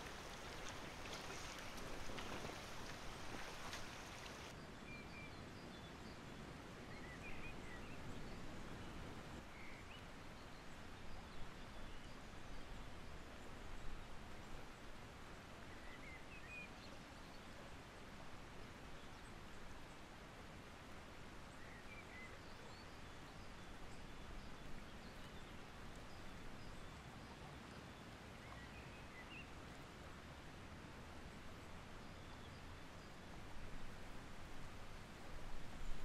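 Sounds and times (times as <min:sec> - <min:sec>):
river rushing over rocks: 0:00.0 - 0:04.6.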